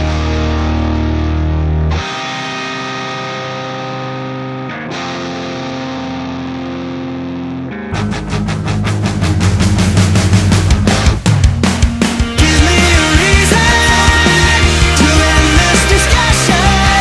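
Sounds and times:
heavy bass: 0:00.0 - 0:02.1, 0:07.9 - 0:17.0
distorted electric guitar chords: 0:00.0 - 0:17.0.

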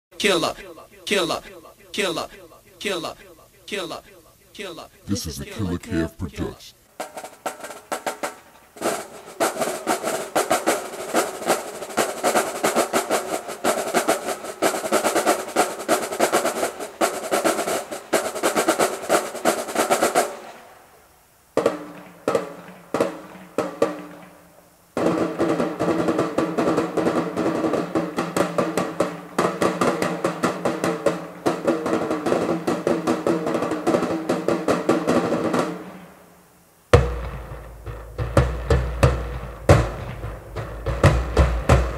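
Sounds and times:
marching snare drums: 0:07.0 - 0:20.5, 0:21.6 - 0:24.3, 0:25.0 - 0:36.0, 0:37.0 - 0:41.9.

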